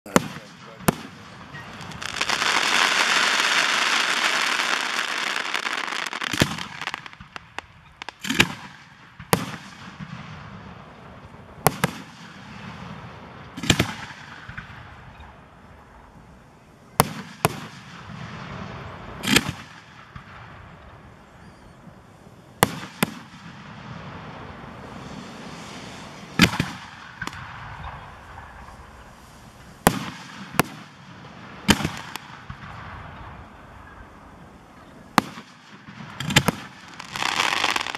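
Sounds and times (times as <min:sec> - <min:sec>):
firework hiss: 0:00.1 - 0:37.9
firework shells bursting: 0:17.0 - 0:21.7, 0:22.6 - 0:33.8, 0:35.1 - 0:37.9.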